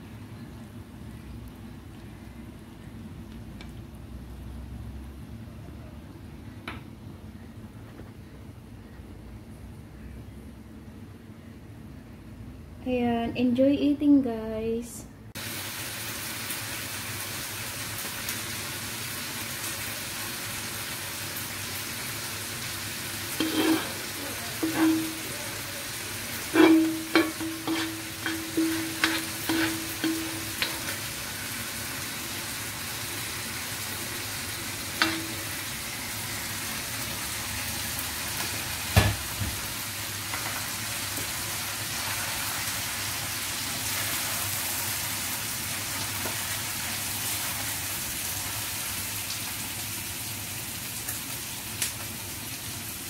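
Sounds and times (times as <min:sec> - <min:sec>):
sizzling hiss: 0:15.4 - 0:53.0
spatula scraping a wok: 0:23.3 - 0:31.2
wok ringing: 0:23.3 - 0:31.5, 0:34.7 - 0:36.1.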